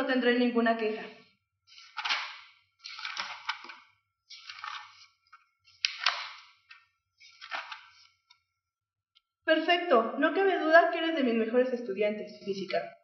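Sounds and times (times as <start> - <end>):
paper sheets rustling: 1.7 - 8.4.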